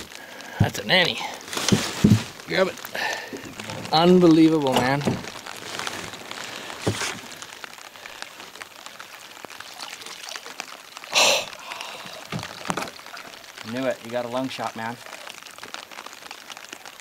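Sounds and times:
light rain on water: 0:00.0 - 0:17.0
water sloshing and dripping: 0:00.0 - 0:17.0
water splash: 0:09.4 - 0:13.9.

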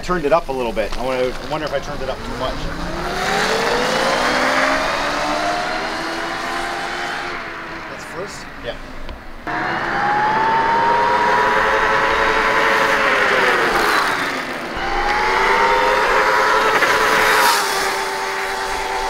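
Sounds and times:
electric motor whine: 0:01.8 - 0:07.4, 0:09.4 - 0:19.0.

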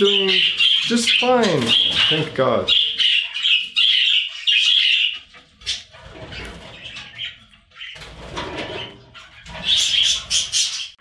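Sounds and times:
budgerigar chirping: 0:00.0 - 0:08.0, 0:08.9 - 0:11.0.

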